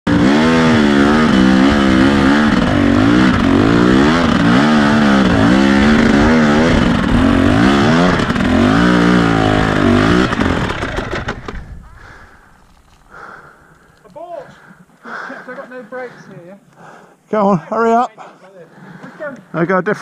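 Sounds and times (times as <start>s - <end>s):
dirt bike engine revving: 0.1s - 13.6s.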